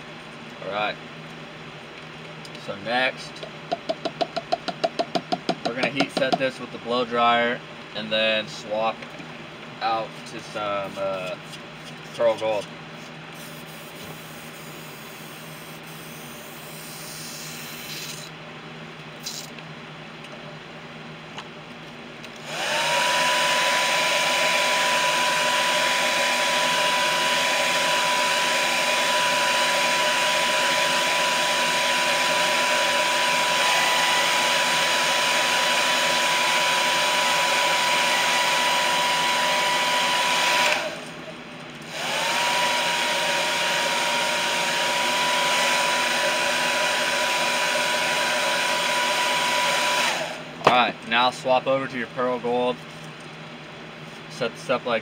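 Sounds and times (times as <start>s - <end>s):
blow dryer whirring: 22.3s - 51.0s.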